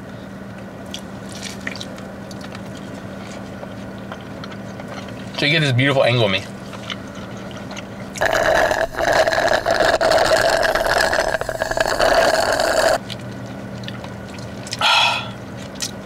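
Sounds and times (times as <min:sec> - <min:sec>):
breathy sound: 0:08.2 - 0:13.0, 0:14.8 - 0:15.4
sucking drink through straw: 0:08.2 - 0:13.0.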